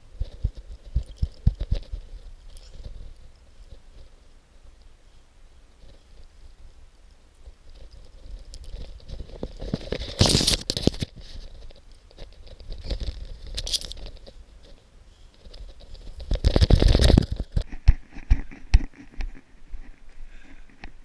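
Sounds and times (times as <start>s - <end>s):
dry grass crunching underfoot: 7.4s - 20.7s.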